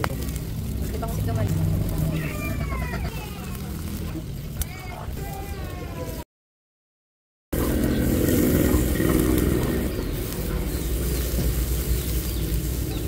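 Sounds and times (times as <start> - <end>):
vehicle engine running: 0.0 - 4.3, 7.6 - 13.0
steady low rumble: 0.0 - 5.2, 7.6 - 13.0.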